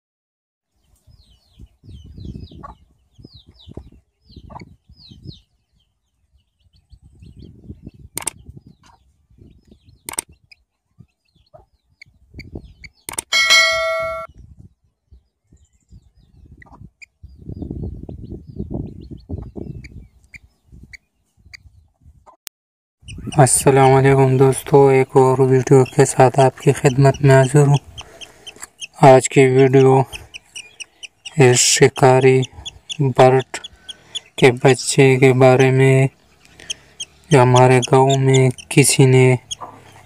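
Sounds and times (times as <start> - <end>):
high bird chirps: 1.0 - 14.3, 23.0 - 40.0
sharp clicks: 8.2 - 8.4, 10.0 - 10.3, 13.0 - 13.3
bell ding sound effect: 13.3 - 14.3.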